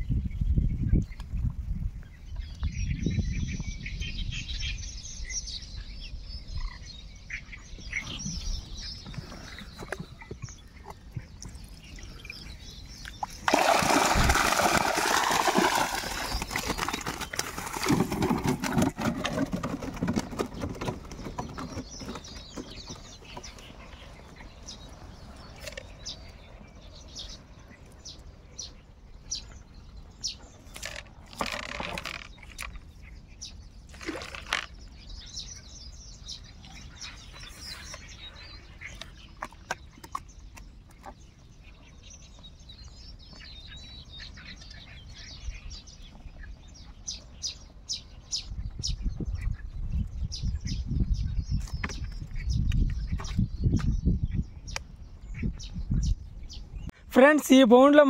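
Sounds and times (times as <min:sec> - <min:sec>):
water splashing and sloshing: 0:12.9 - 0:26.6, 0:33.9 - 0:35.0, 0:37.4 - 0:41.8.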